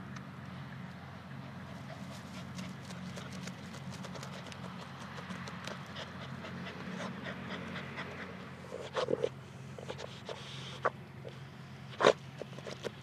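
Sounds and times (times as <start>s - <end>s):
steady low hum: 0.0s - 13.0s
dog panting: 1.5s - 10.9s.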